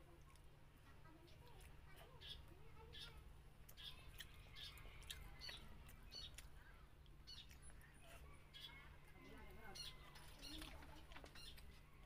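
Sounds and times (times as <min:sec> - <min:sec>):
wet mouth chewing clicks: 0:03.6 - 0:08.0.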